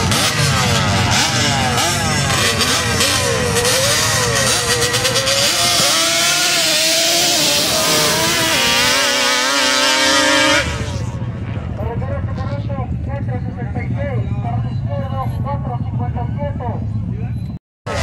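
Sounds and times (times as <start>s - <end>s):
drag racer engine revving: 0.0s - 11.8s.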